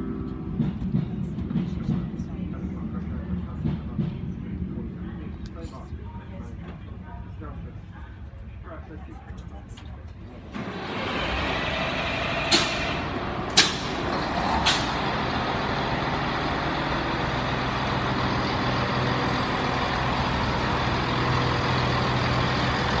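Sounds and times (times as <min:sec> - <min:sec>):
diesel engine idling: 0:10.4 - 0:23.0
air-brake hisses: 0:10.6 - 0:15.2.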